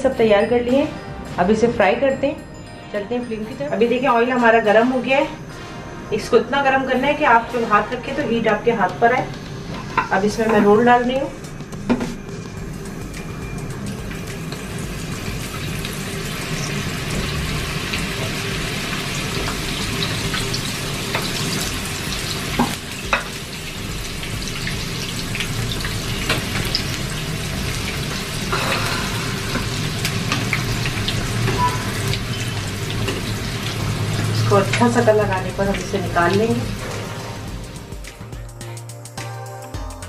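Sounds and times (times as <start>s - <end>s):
food deep-frying in oil: 12.6s - 37.8s.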